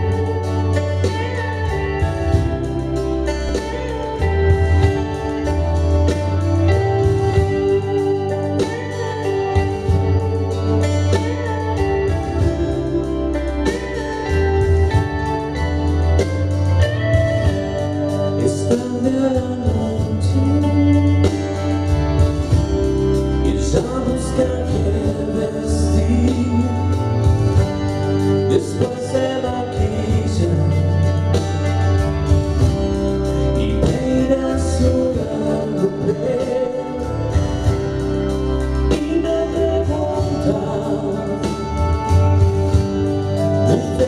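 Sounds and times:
electric and acoustic guitars: 0:00.0 - 0:44.0
person singing: 0:17.2 - 0:21.9, 0:23.3 - 0:27.7, 0:28.4 - 0:31.7, 0:33.4 - 0:37.8, 0:38.8 - 0:42.6.

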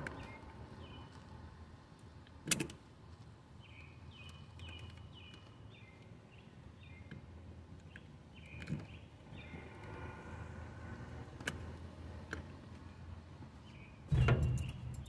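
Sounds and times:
bird chirping: 0:03.6 - 0:07.1, 0:07.9 - 0:09.6, 0:13.6 - 0:15.0.

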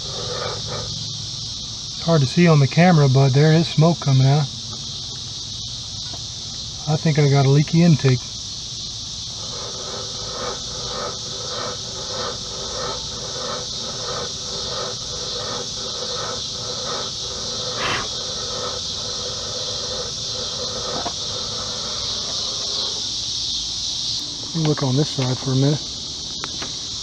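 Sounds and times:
quiet rhythmic pulse: 0:00.0 - 0:02.3, 0:08.2 - 0:24.4
insects chirping: 0:00.0 - 0:27.0.

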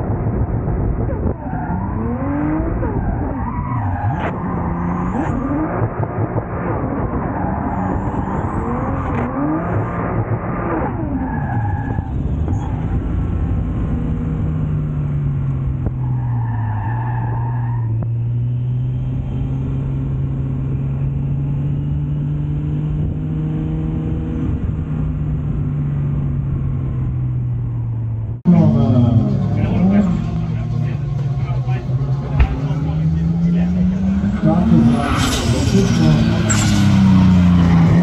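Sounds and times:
race car engine revving: 0:00.0 - 0:15.8, 0:28.4 - 0:38.0.

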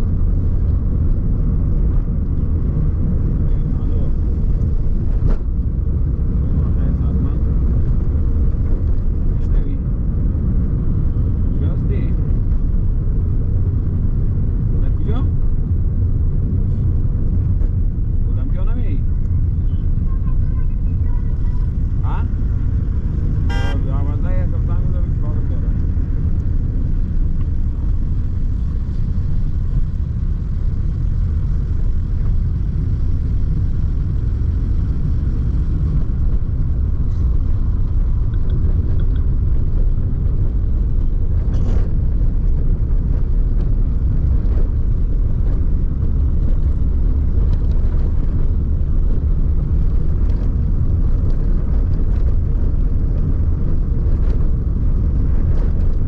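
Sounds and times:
vehicle driving on wet road: 0:00.0 - 0:56.0.

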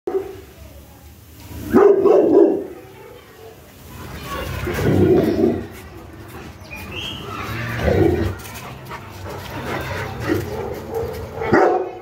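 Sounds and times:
dogs barking: 0:01.7 - 0:02.8, 0:07.8 - 0:12.0.

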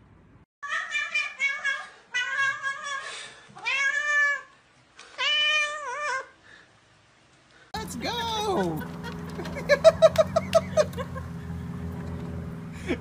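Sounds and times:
cat meowing loudly: 0:00.6 - 0:03.0, 0:03.6 - 0:04.5, 0:05.2 - 0:06.3.

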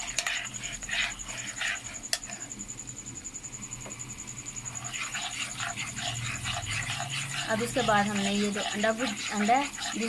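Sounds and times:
wooden spoon scraping: 0:00.0 - 0:02.5, 0:04.6 - 0:10.0
onion and garlic sizzling: 0:04.6 - 0:10.0.

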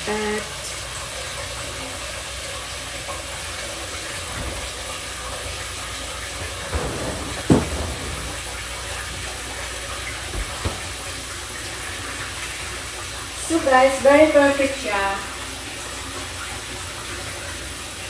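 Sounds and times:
water running in a kitchen: 0:00.0 - 0:18.0
knocks: 0:06.4 - 0:09.1.

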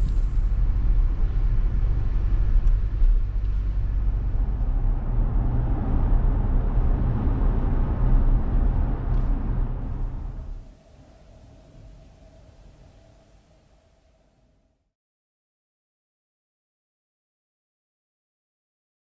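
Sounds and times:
engine and road rumble: 0:00.0 - 0:13.5.

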